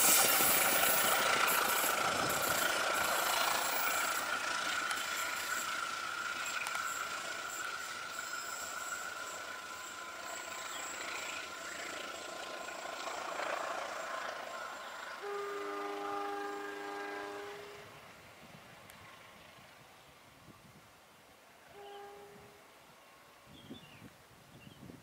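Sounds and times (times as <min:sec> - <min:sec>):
steady high-pitched tone: 0:00.0 - 0:18.0
train wheels on rails: 0:00.0 - 0:20.0.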